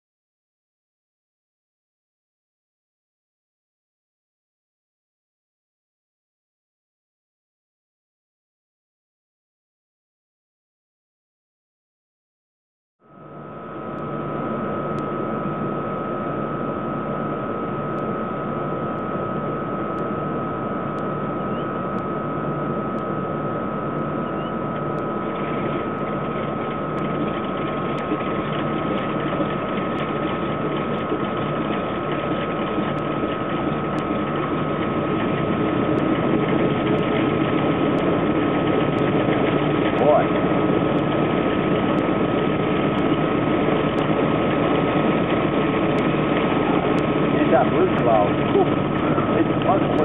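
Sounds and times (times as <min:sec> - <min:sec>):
high-pitched whine: 0:13.0 - 0:50.0
propeller plane engines idling: 0:13.1 - 0:50.0.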